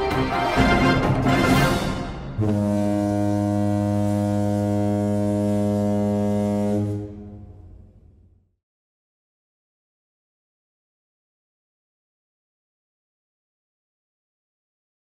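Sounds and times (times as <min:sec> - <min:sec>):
ship's horn blast: 0:00.4 - 0:08.4.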